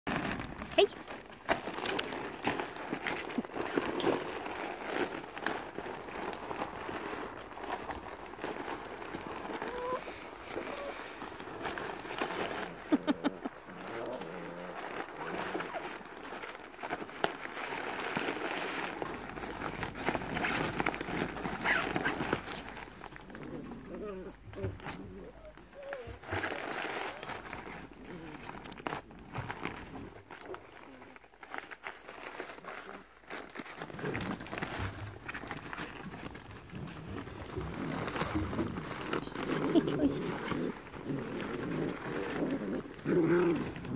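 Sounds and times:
fabric rustling and crinkling: 0:00.1 - 0:43.9
scuffling on nylon play tunnel: 0:00.1 - 0:43.9
puppies play-growling: 0:00.2 - 0:43.9
puppies yipping: 0:09.1 - 0:11.0.

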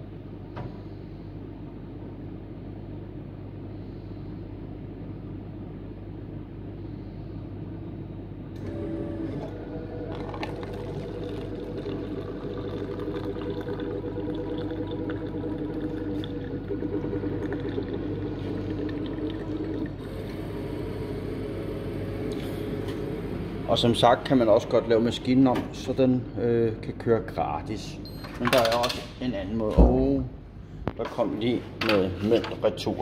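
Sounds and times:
vending machine hum: 0:00.0 - 0:33.0
coffee pouring into cup: 0:08.7 - 0:20.8.

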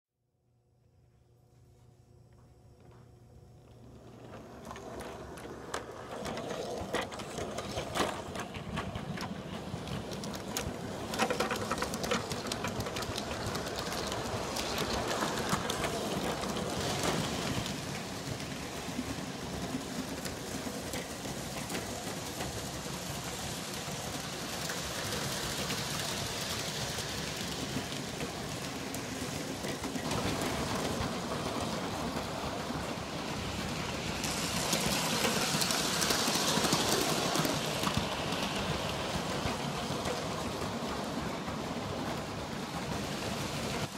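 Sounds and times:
wheels clicking over rail joints: 0:03.6 - 0:43.9.

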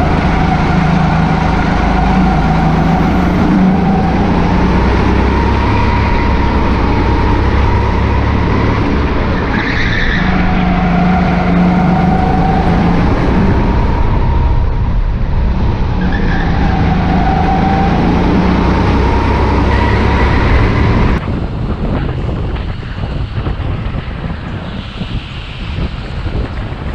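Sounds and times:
go-kart engine revving: 0:00.0 - 0:21.2
rushing noise: 0:00.0 - 0:26.9.

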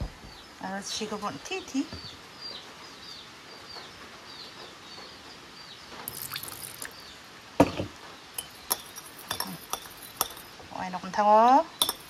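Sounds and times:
bird chirping: 0:00.0 - 0:11.0
spoon knocking bowl: 0:07.6 - 0:10.5, 0:11.8 - 0:12.0
spoon clinks: 0:08.4 - 0:10.5, 0:11.8 - 0:12.0
spoon stirring liquid: 0:08.4 - 0:10.6, 0:11.8 - 0:12.0.

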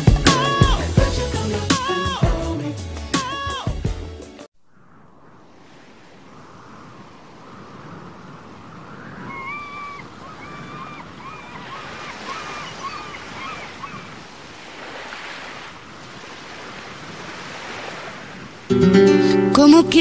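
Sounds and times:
ocean waves washing onto shore: 0:04.9 - 0:18.8.

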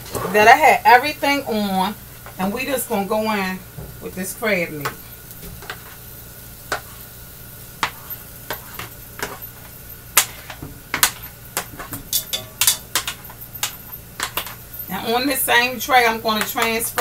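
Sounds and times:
shrimp sizzling in a pan: 0:00.7 - 0:17.0
utensil scraping and tapping pan: 0:06.7 - 0:07.0, 0:07.8 - 0:14.6.

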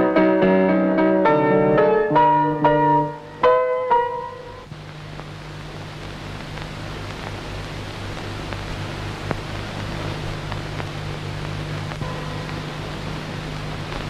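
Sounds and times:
even hiss: 0:00.0 - 0:14.0
low steady hum: 0:00.0 - 0:14.0
faint clicks: 0:04.7 - 0:14.0.

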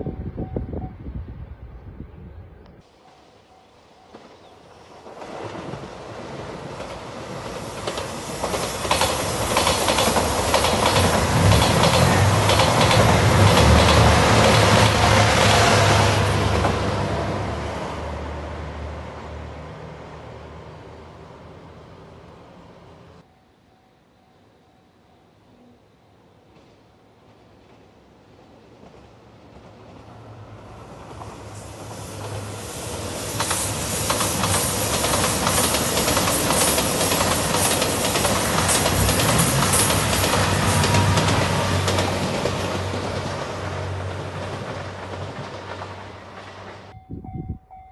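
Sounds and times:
train wheels clicking over rail joints: 0:06.6 - 0:15.6, 0:31.0 - 0:46.9.

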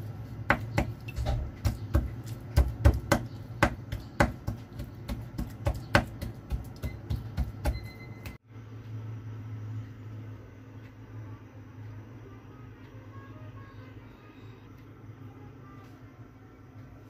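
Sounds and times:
steady low hum: 0:00.0 - 0:17.0
utensil tapping against dish: 0:00.5 - 0:07.9.

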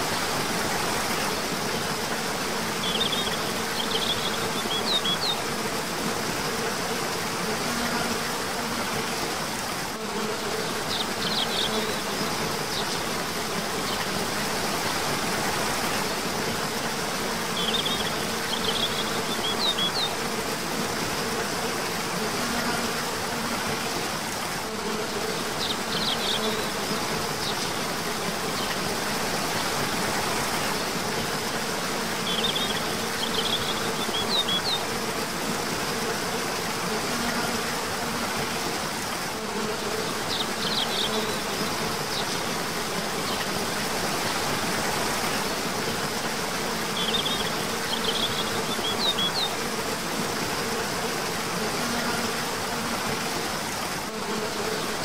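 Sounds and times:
waterfall rushing: 0:00.0 - 0:10.0
insect buzz: 0:00.0 - 0:55.0.

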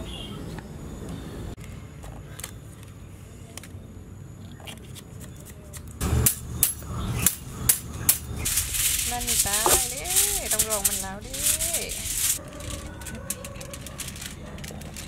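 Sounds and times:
wire basket clicking and rattling: 0:06.2 - 0:15.0.

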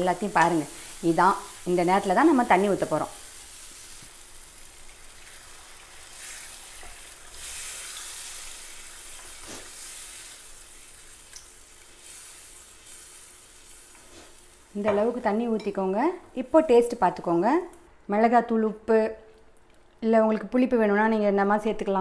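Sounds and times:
food sizzling in frying pan: 0:00.0 - 0:15.4.

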